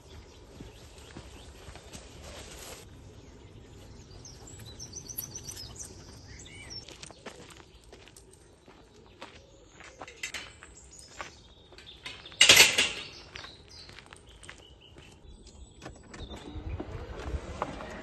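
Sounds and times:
metal gate clanging shut: 0:10.1 - 0:10.6, 0:12.0 - 0:13.3.

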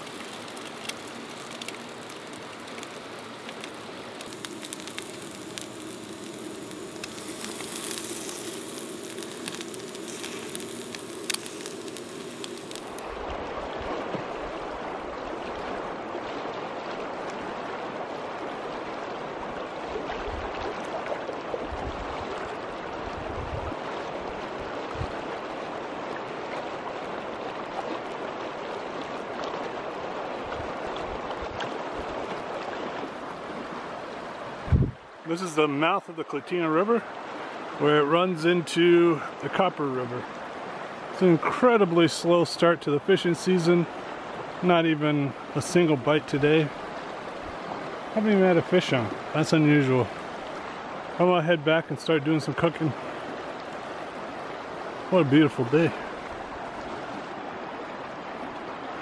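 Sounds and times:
food sizzling in a frying pan: 0:00.0 - 0:13.1
wind buffeting microphone: 0:23.0 - 0:23.8, 0:34.6 - 0:35.0.

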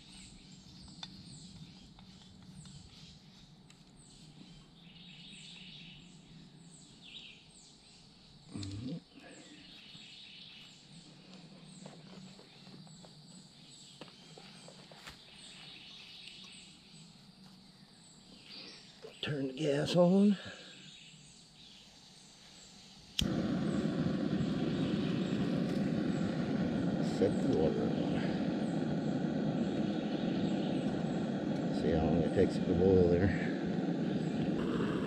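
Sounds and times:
faint steady hiss: 0:00.0 - 0:35.0
high falling chirps: 0:23.0 - 0:35.0.

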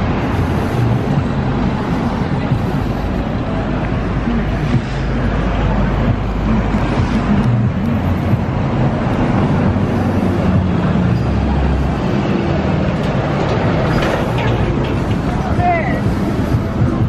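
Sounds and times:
city traffic engines humming: 0:00.0 - 0:17.0.

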